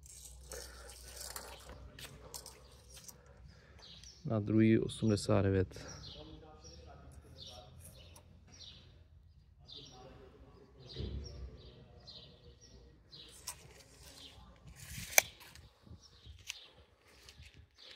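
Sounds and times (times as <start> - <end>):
small birds chirping: 0.0 - 17.9
tape measure snapping shut: 14.8 - 15.6.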